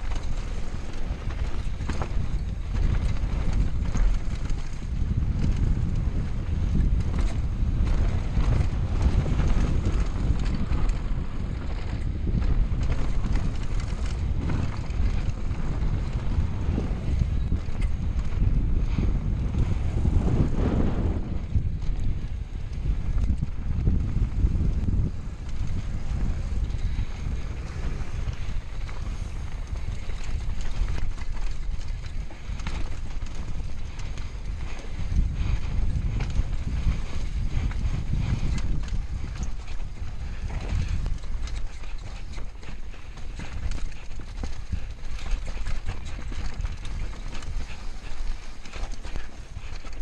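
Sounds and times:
bike rattling and knocking: 0.0s - 50.0s
wind buffeting microphone: 0.0s - 50.0s
tyres crunching over dirt: 21.9s - 50.0s.

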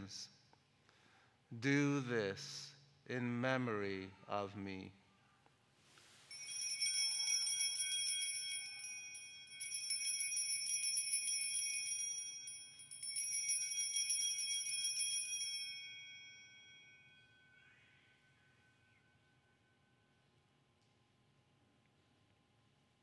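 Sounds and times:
altar bells jingling: 6.2s - 18.8s.

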